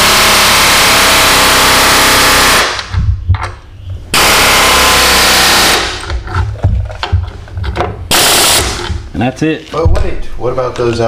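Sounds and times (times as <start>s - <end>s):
knocks: 2.8s - 3.7s, 6.0s - 8.1s.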